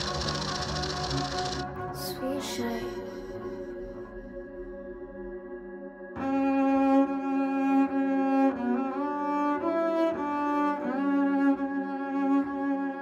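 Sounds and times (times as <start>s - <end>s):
low bowed strings: 6.2s - 13.0s.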